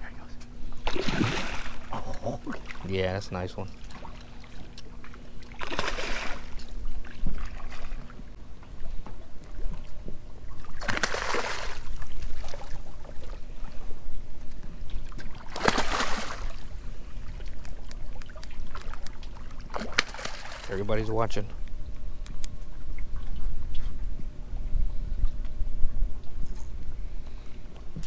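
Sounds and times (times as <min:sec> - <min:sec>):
steady low rumble: 0:00.0 - 0:10.8, 0:20.9 - 0:28.0
fish splashing at surface: 0:00.8 - 0:02.8, 0:05.4 - 0:06.6, 0:10.7 - 0:12.8, 0:15.2 - 0:16.7, 0:18.2 - 0:20.7.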